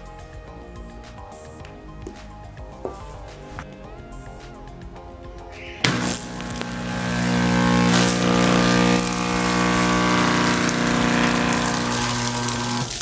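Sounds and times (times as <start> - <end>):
water pump buzzing: 5.9 - 13.0
water splashing: 5.9 - 13.0.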